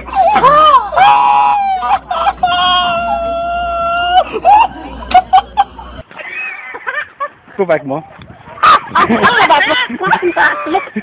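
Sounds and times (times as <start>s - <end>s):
rooster crowing: 0.0s - 4.9s.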